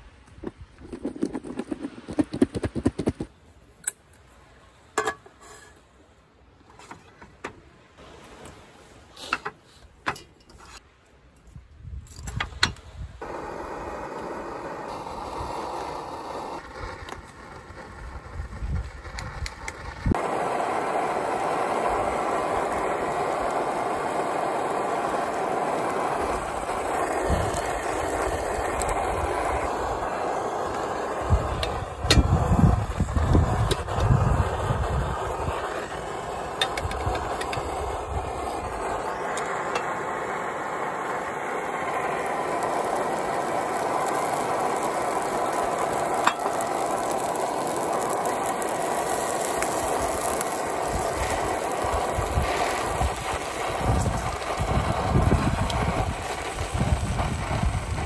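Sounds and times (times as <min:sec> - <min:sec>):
pancake sizzling in a frying pan: 0:13.2 - 0:58.0.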